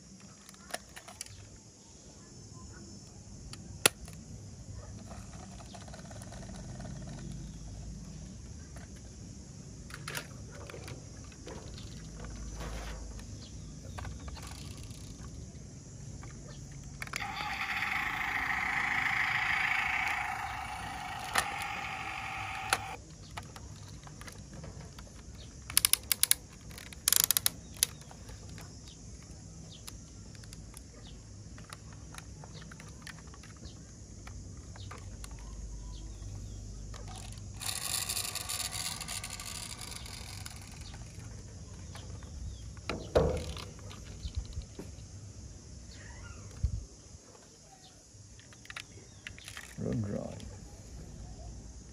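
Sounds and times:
sharp plastic clicks: 17.0 - 24.4, 25.6 - 28.7
electronic toy tone: 17.2 - 23.0.

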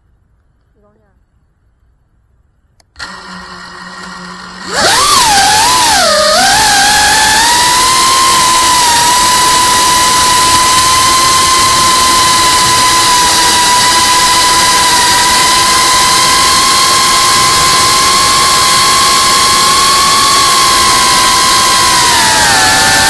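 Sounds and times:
drone motors whining: 3.0 - 23.0.

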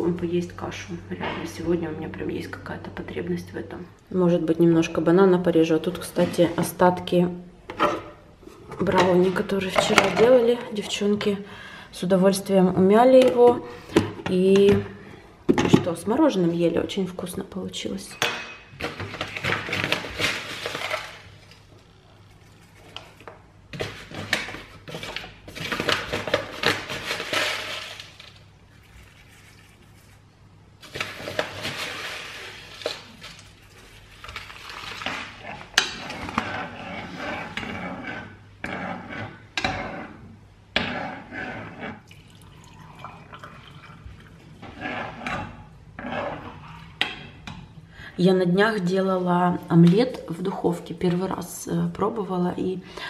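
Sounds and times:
plastic bag rustling: 18.8 - 21.6, 23.8 - 35.8.

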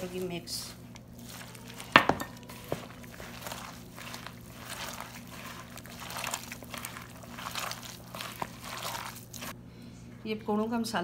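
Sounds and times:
hand squishing batter: 0.0 - 9.6.

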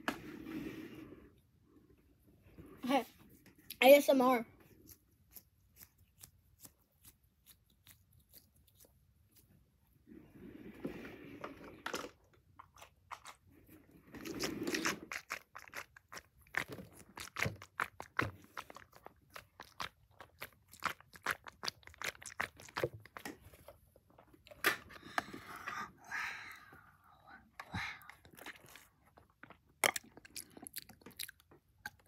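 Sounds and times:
sipping through a straw: 13.2 - 15.8.

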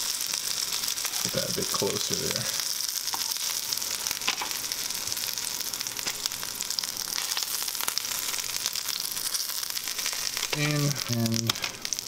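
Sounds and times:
fish frying in hot oil: 0.0 - 12.0.

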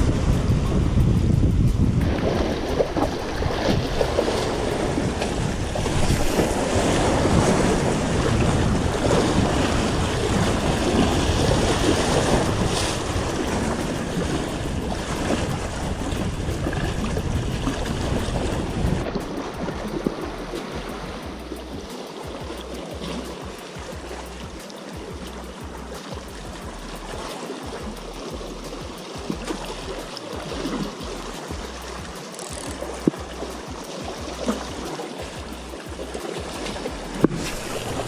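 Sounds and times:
waves splashing against rocks: 0.0 - 38.0
wind buffeting microphone: 0.0 - 38.0.

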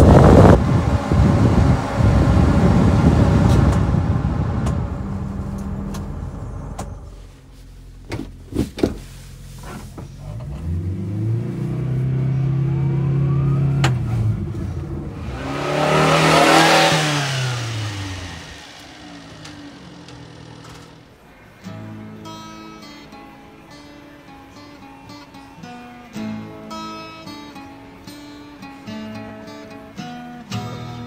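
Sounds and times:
truck driving past: 0.0 - 7.4, 10.6 - 21.3
truck engine revving: 0.0 - 7.4, 10.2 - 21.3
ventilation fan blowing: 0.0 - 21.4.

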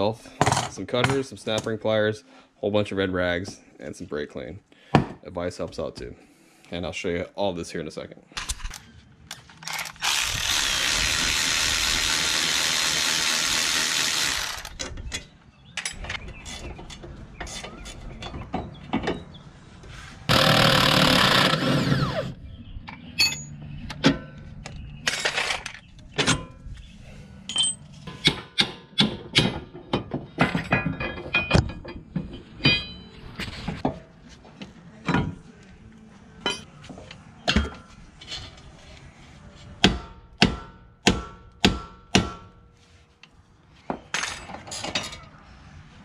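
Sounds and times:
metal tools clanking: 22.9 - 26.7, 27.4 - 28.6, 29.4 - 34.0, 36.4 - 36.7, 44.0 - 45.4.

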